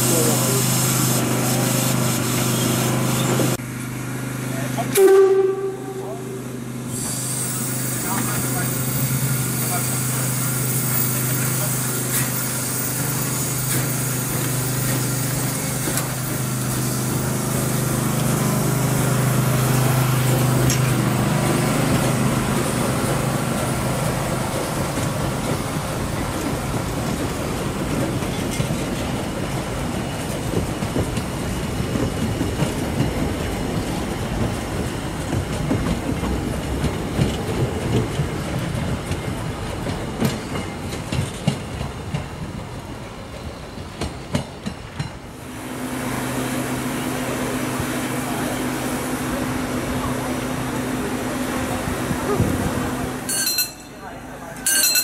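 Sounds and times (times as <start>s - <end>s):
train wheels clicking on rail joints: 6.9s - 45.4s.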